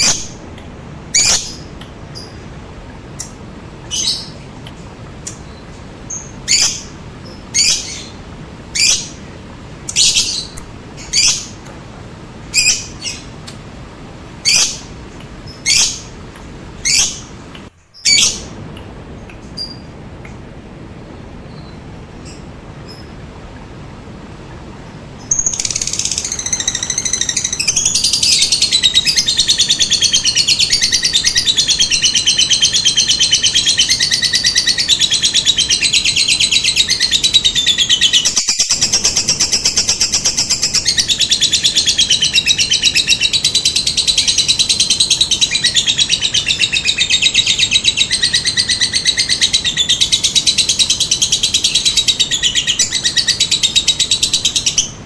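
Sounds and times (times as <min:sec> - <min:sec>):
lovebird chattering trill: 0:00.0 - 0:00.4, 0:01.1 - 0:02.4, 0:25.2 - 0:55.0.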